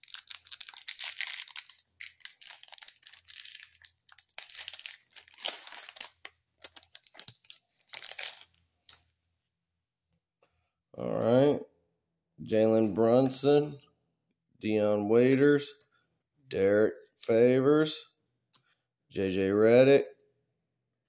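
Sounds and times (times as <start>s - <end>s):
foil pack tearing and crinkling: 0.0s - 8.4s.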